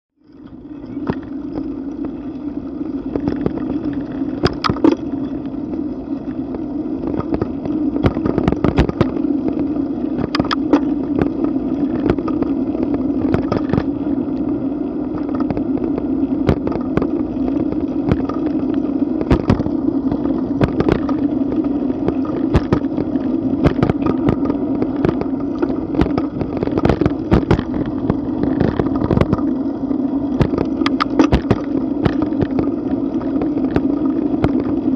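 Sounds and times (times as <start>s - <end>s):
wind and road hum: 0.2s - 34.9s
bicycle knocks and rattles: 3.1s - 5.4s, 7.1s - 9.6s, 10.2s - 13.9s, 22.0s - 29.5s, 30.4s - 32.7s.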